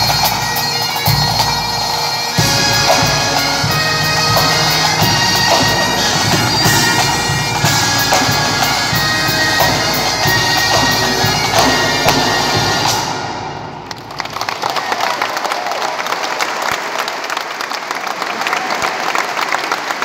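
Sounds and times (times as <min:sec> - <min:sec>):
bagpipes with drones: 0:00.0 - 0:13.8
snare drums: 0:00.0 - 0:14.3
applause: 0:13.8 - 0:20.0.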